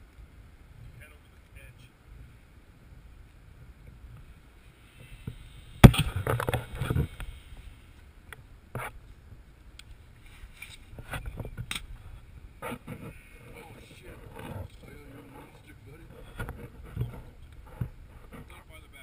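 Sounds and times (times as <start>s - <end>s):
wind rumbling on microphone: 0.0s - 19.0s
rubbing and clatter: 12.6s - 18.6s.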